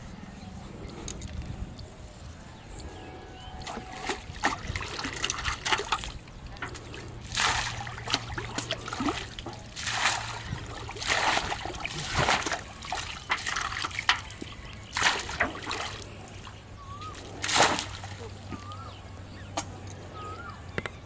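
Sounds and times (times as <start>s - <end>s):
water splashing from bailing: 3.3s - 19.0s.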